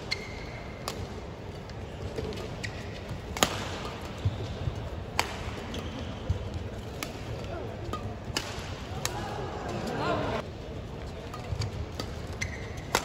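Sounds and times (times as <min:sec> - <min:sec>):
arena hall noise: 0:00.0 - 0:13.0.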